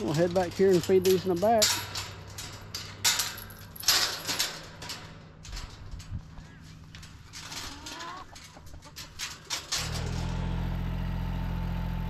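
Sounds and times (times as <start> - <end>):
chickens clucking: 6.3 - 9.2
tractor engine idling: 9.9 - 12.0.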